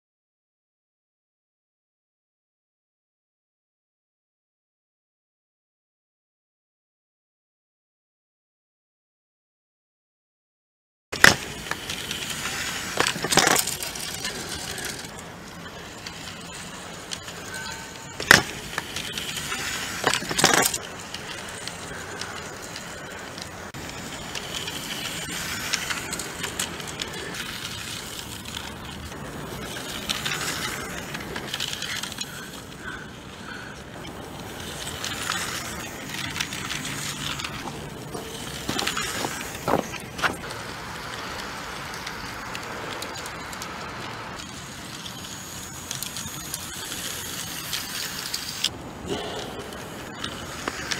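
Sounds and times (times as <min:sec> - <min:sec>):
toy tram rolling whir: 0:11.2 - 0:50.9.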